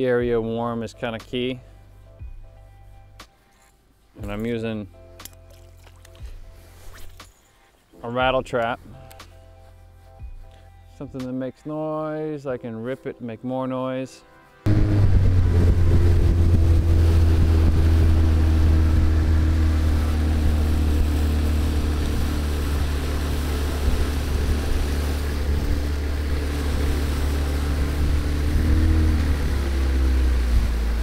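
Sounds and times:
outboard motor running: 14.7 - 31.0.

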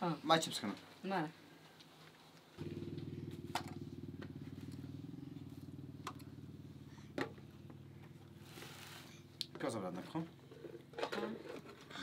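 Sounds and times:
small engine running: 2.6 - 11.9.

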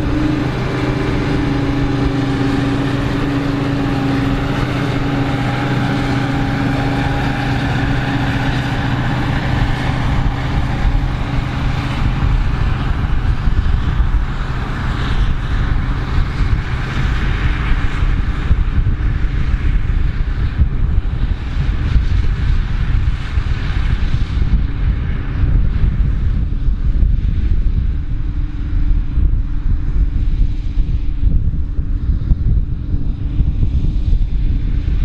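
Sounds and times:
forage harvester running: 0.0 - 35.0.

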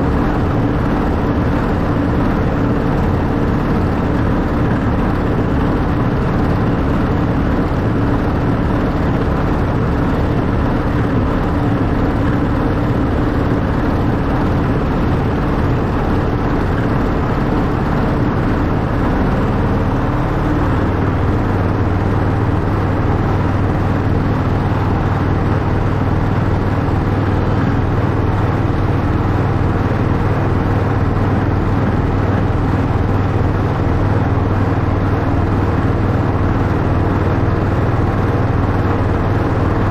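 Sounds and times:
model locomotive humming: 0.0 - 39.9.

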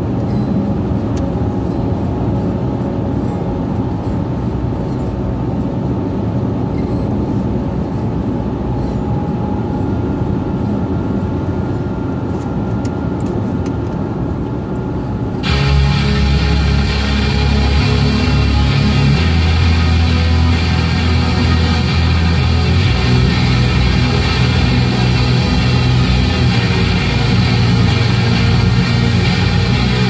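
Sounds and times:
car road and engine noise: 0.0 - 30.0
loud music: 15.4 - 30.0.

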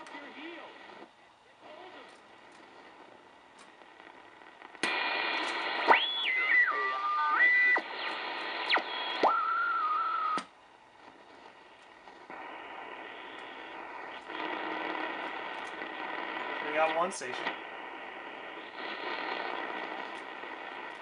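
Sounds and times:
radio static and hiss: 0.0 - 21.0
sliding radio whistles: 4.8 - 10.5, 11.3 - 20.9.

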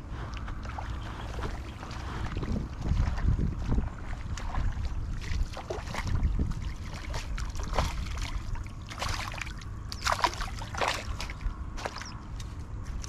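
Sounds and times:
wind rumble on microphone: 0.0 - 13.0
fish splashing at water surface: 4.2 - 12.2.

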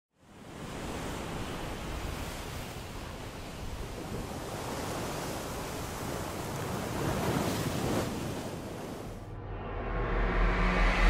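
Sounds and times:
waves breaking on beach: 0.2 - 9.2.

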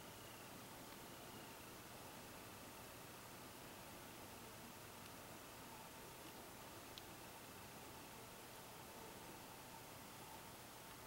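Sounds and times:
faint click: 6.2 - 7.1.

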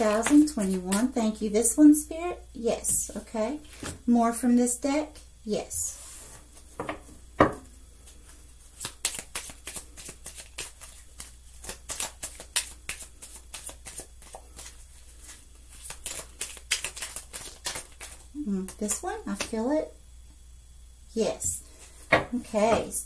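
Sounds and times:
cards being shuffled: 0.0 - 1.1, 8.0 - 19.6.

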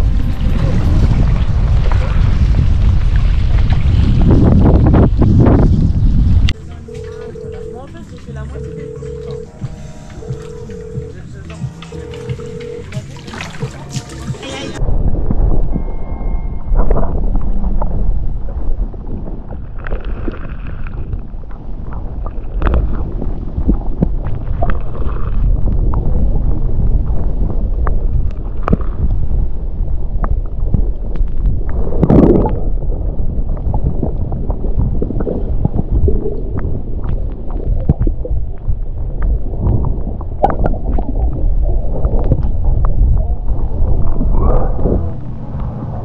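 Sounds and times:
wind rumble on microphone: 0.0 - 8.6, 13.4 - 46.0
water splashing around kayak: 11.6 - 15.8, 16.8 - 46.0.

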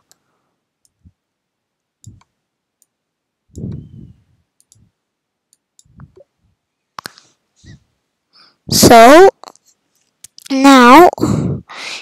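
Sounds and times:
soft low thumps: 3.5 - 5.0.

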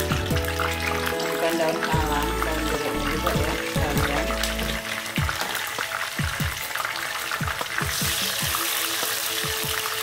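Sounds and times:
oil popping: 0.0 - 10.0
vegetables sizzling in hot oil: 0.0 - 10.0.

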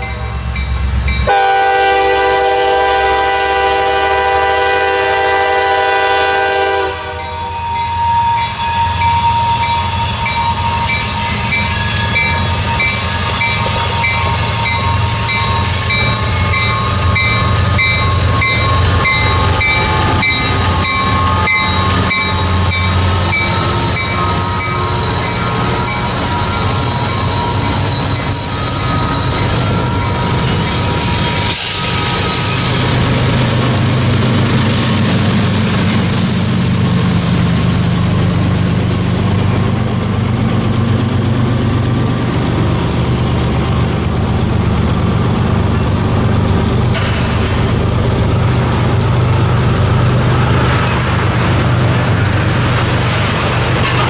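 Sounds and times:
locomotive bell ringing: 0.0 - 2.4, 7.1 - 33.0
freight locomotives passing: 0.0 - 54.0
train cars rumbling past: 0.0 - 54.0.

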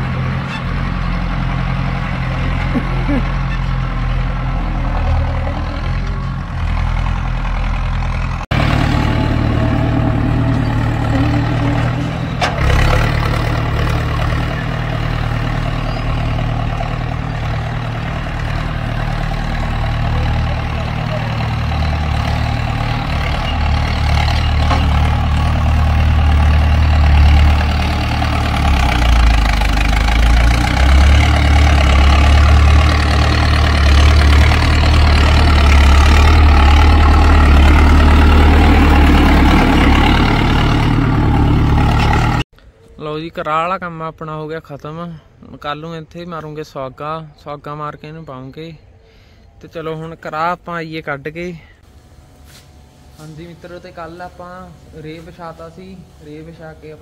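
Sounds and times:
tractor engine humming: 0.0 - 42.8.

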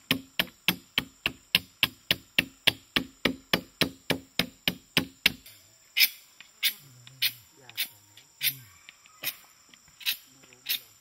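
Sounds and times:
chisel chopping into wood: 0.1 - 5.4.

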